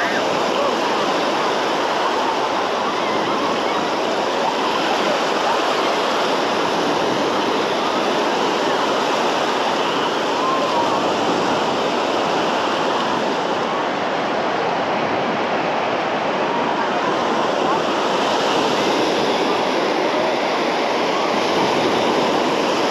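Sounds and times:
small waves breaking on shore: 0:00.0 - 0:22.9.

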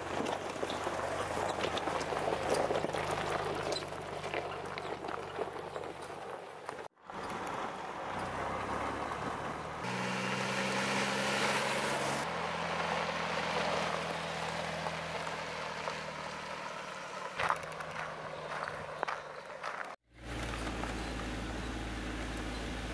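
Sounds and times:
vehicle driving past on gravel: 0:00.0 - 0:22.9
diesel engine running: 0:06.9 - 0:22.9.

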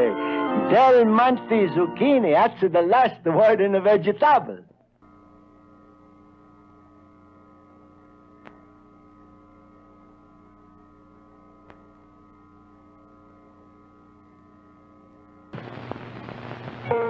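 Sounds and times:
faint electrical hum: 0:02.0 - 0:17.0
soft clicks: 0:11.6 - 0:11.9.

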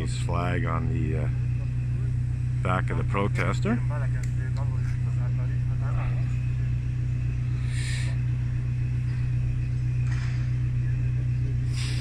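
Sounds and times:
motor vehicle idling hum: 0:00.0 - 0:12.0
short hisses: 0:07.6 - 0:08.2, 0:11.7 - 0:12.0.

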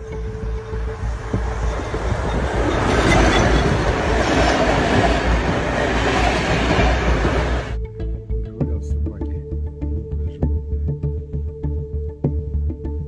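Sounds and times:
electric train passing: 0:00.0 - 0:07.8.

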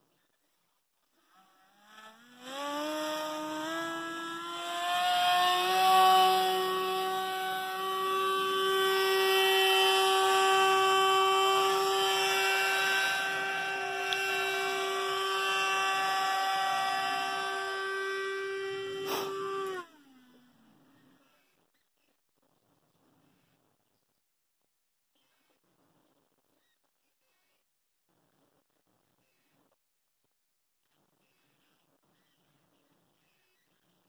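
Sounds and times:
electric motor propeller whine: 0:01.2 - 0:20.6.

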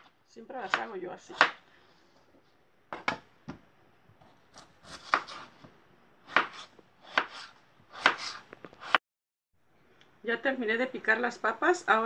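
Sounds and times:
knife dicing on cutting board: 0:04.6 - 0:05.5, 0:06.3 - 0:09.0.

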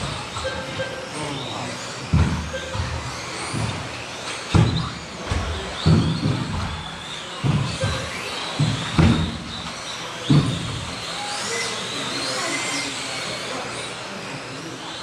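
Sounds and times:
rc car motor whine: 0:00.0 - 0:15.0
heavy thumps: 0:02.1 - 0:11.0.

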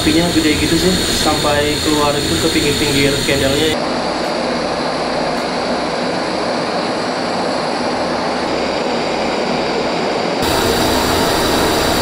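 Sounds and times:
gas burner flame hissing: 0:00.0 - 0:03.8, 0:10.4 - 0:12.0.

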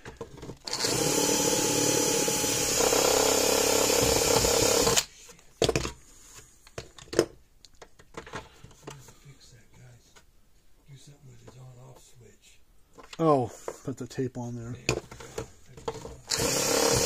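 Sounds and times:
cordless drill through plastic: 0:00.6 - 0:05.1, 0:16.2 - 0:17.0.

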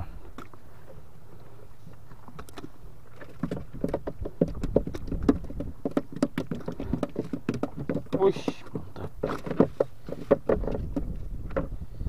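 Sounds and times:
fish slapping on wooden deck: 0:03.2 - 0:11.7.

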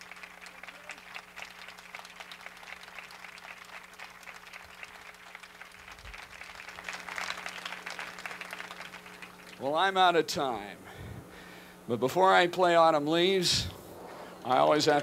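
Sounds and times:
audience applauding: 0:00.0 - 0:09.6
faint electrical hum: 0:00.0 - 0:15.0.

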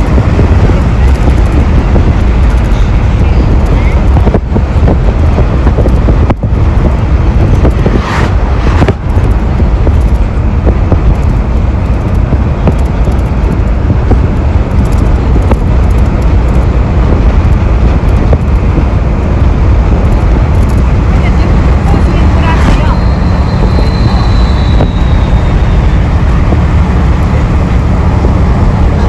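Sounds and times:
road vehicle rumble: 0:00.0 - 0:29.0.

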